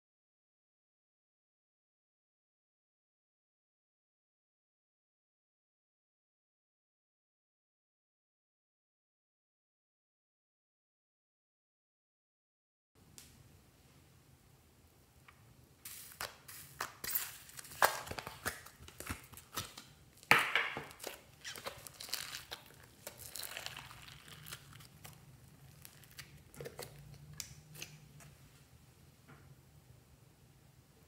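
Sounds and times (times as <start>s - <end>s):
slime crackling and popping: 16.0s - 28.0s.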